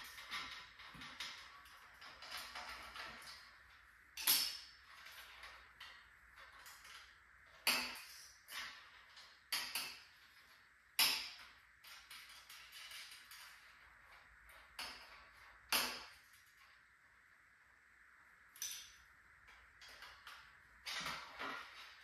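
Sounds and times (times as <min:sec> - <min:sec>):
metal parts clanking: 0:00.0 - 0:10.4.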